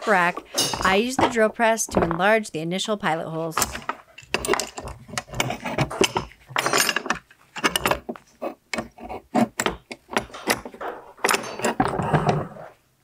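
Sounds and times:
metal pieces clattering: 0:03.7 - 0:08.0.

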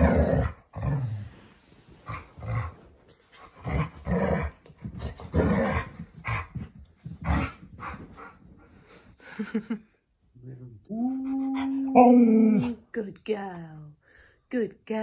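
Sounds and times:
dogs growling in play: 0:00.0 - 0:08.3.

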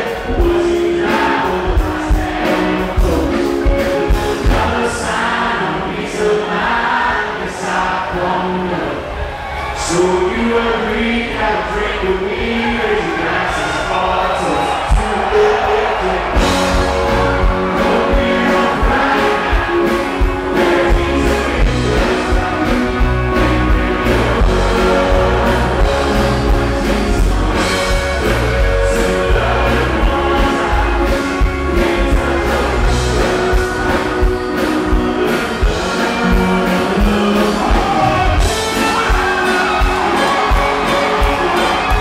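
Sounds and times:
man singing: 0:00.0 - 0:09.1, 0:09.8 - 0:42.0
country band playing: 0:00.0 - 0:42.0.

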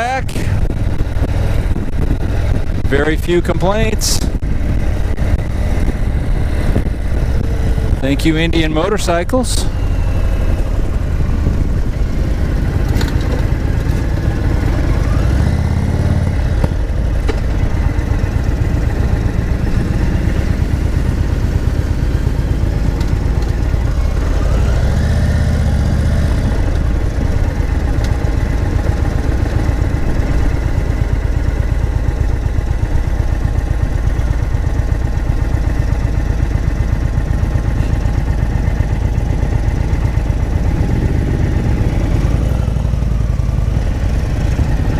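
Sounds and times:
motorcycle engine running: 0:00.0 - 0:44.9.

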